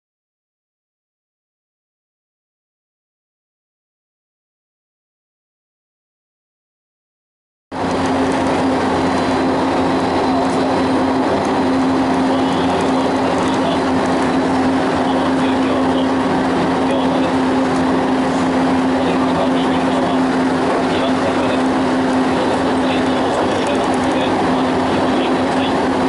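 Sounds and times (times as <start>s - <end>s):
constant low hum: 7.8s - 26.0s.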